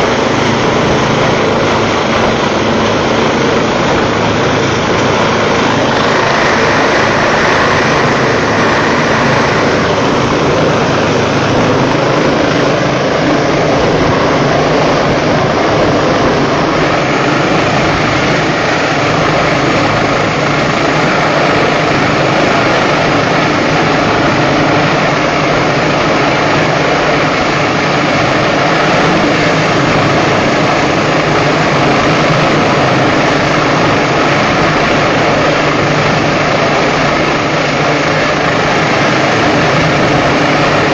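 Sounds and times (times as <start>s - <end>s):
helicopter rotor and turbine: 0.0s - 40.9s.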